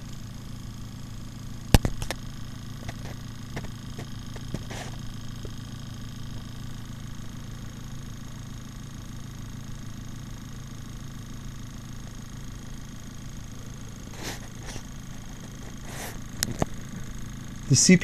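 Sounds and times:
fan hum with high whine: 0:00.0 - 0:18.0
sharp click: 0:01.7 - 0:02.2.

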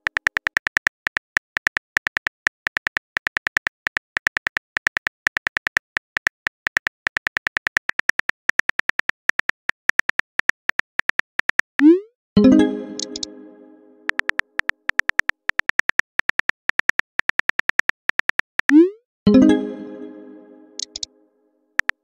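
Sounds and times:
phone keyboard clicks: 0:20.8 - 0:21.1.

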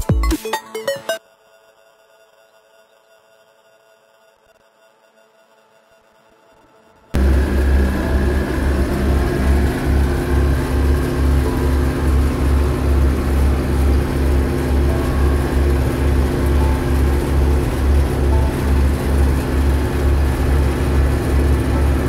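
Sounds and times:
diesel engine droning: 0:07.2 - 0:22.0.

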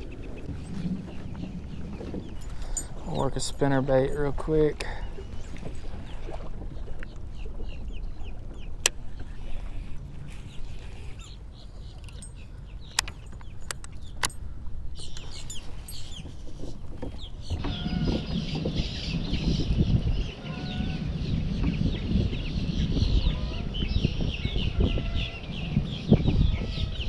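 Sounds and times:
wind rumble on microphone: 0:00.0 - 0:27.0
birds clucking: 0:07.5 - 0:27.0.

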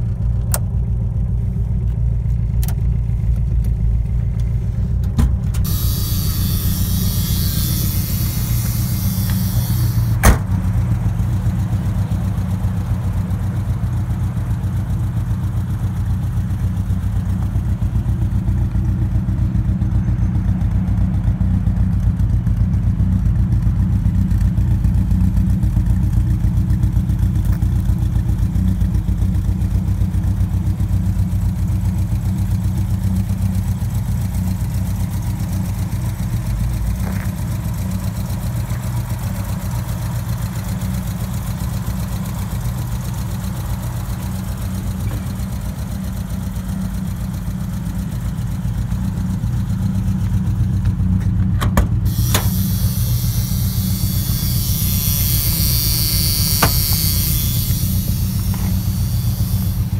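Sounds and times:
car engine idling: 0:00.0 - 0:59.9
short hiss: 0:52.1 - 0:59.9.

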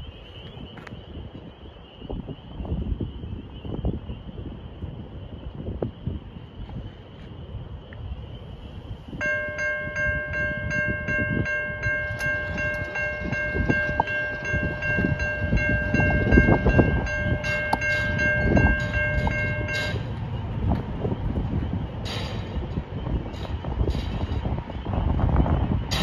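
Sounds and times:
low train rumble: 0:00.0 - 0:26.0
railroad crossing bell ringing: 0:09.1 - 0:26.0.

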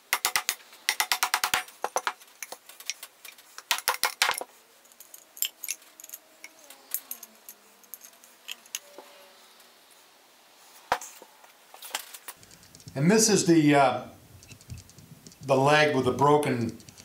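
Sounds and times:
wooden parts clicking and knocking: 0:00.0 - 0:08.9, 0:12.3 - 0:13.1, 0:14.4 - 0:15.6, 0:16.2 - 0:17.0.

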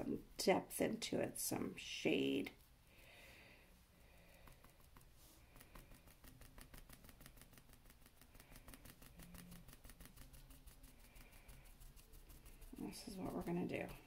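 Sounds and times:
paintbrush tapping on canvas: 0:04.4 - 0:10.5.

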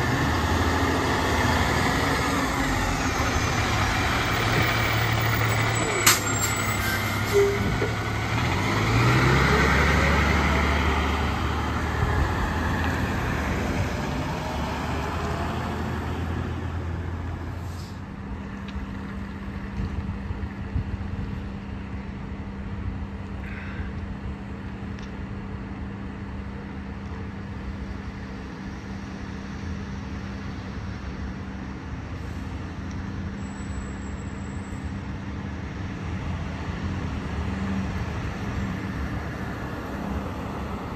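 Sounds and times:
diesel engine accelerating: 0:00.0 - 0:20.7
low engine hum: 0:00.0 - 0:40.9
tyre and road noise: 0:00.0 - 0:40.9.

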